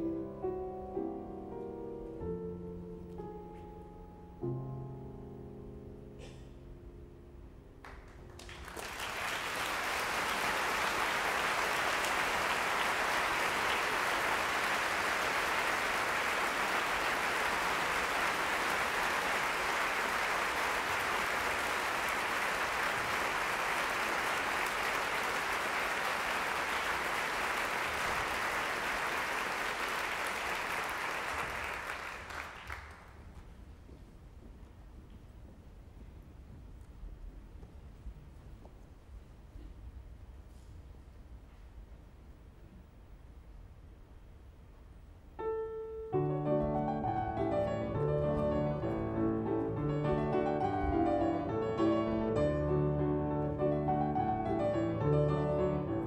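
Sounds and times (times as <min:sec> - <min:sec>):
grand piano chords: 0:00.0 - 0:08.4, 0:45.4 - 0:56.0
audience applause: 0:07.8 - 0:33.3.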